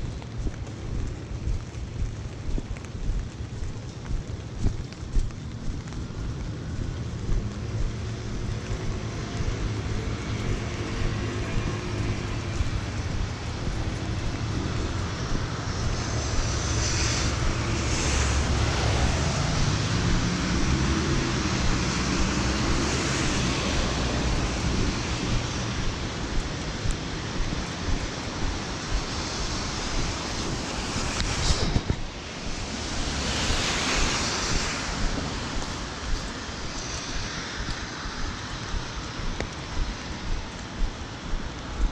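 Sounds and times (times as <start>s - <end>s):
rain: 0.0s - 41.9s
traffic on wet roads: 0.0s - 41.9s
wind noise on microphone: 0.0s - 41.9s
vehicle engine passing: 7.1s - 28.7s.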